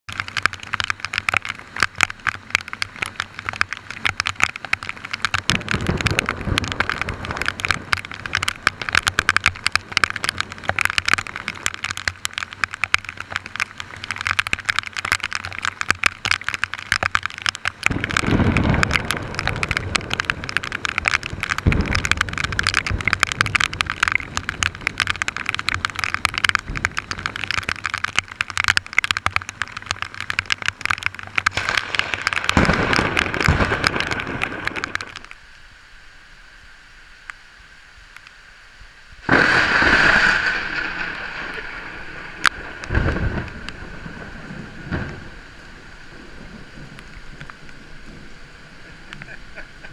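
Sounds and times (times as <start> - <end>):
raindrops crackling near microphone: 0.0 - 49.9
heavy rain falling: 0.1 - 49.9
thunder rumbling: 5.3 - 11.1, 17.8 - 27.9, 31.5 - 35.2, 39.2 - 49.9.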